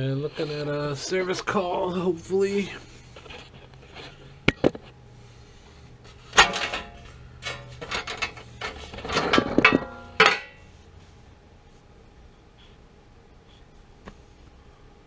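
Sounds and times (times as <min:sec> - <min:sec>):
handling knocks and scrapes: 0:06.0 - 0:10.8.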